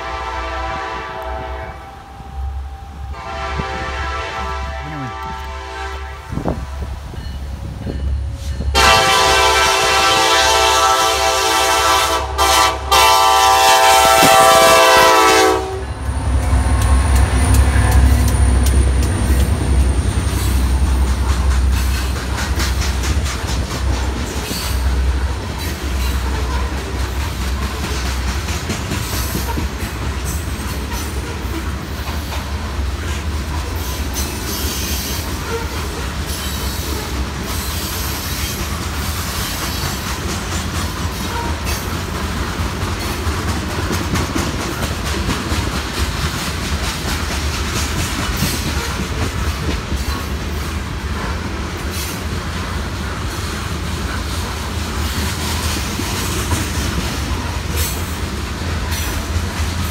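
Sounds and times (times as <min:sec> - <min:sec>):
locomotive horn chord: 0:00.0 - 0:06.9, 0:08.7 - 0:18.5
deep locomotive engine drone: 0:00.0 - 0:59.9
train wheels rolling: 0:00.0 - 0:59.9
wheels clicking over rail joints: 0:16.0 - 0:59.9.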